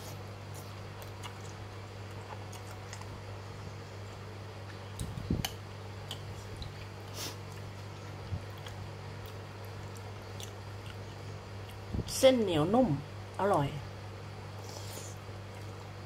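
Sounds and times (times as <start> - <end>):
person chewing: 0.0 - 3.2, 4.6 - 11.9
steady low hum: 0.0 - 16.0.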